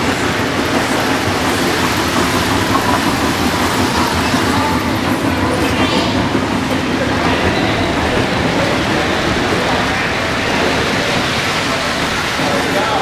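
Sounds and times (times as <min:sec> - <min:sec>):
model train rumbling on track: 0:00.0 - 0:13.0.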